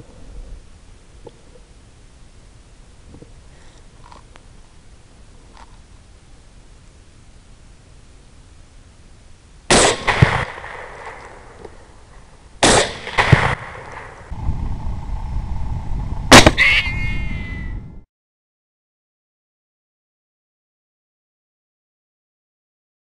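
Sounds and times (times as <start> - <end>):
steady background noise: 0.0 - 18.0
rifle shots: 9.7 - 11.6, 12.6 - 14.3, 16.3 - 16.8
sharp crack: 9.7 - 14.3, 16.3 - 17.0.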